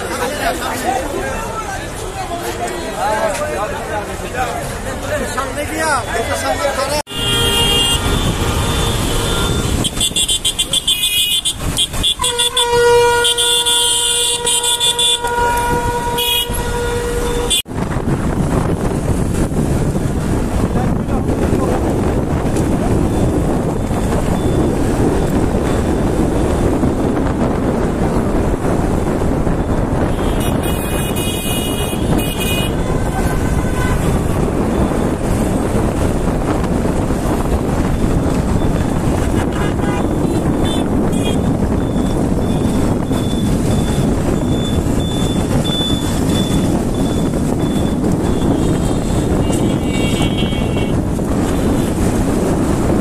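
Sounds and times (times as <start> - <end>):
road noise: 0.0 - 53.0
vehicle horns tooting: 5.8 - 17.7, 30.0 - 34.9, 39.0 - 43.6, 44.4 - 46.8, 47.7 - 52.0
wind on microphone: 7.2 - 53.0.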